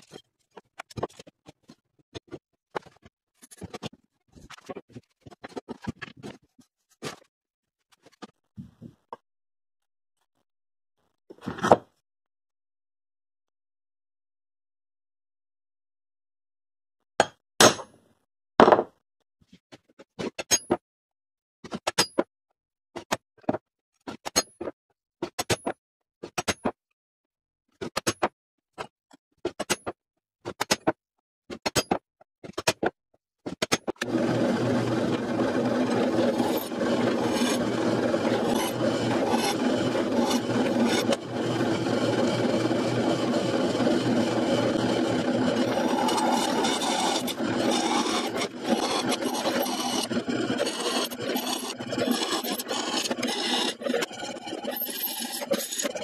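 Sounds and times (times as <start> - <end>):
drill press cutting metal: 34.0 - 56.0.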